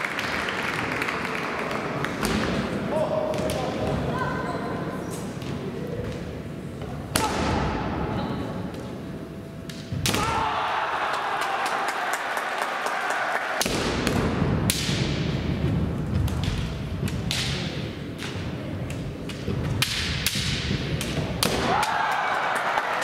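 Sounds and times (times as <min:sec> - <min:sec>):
bamboo swords clacking: 0:16.2 - 0:22.0
fencers shouting: 0:21.4 - 0:23.0.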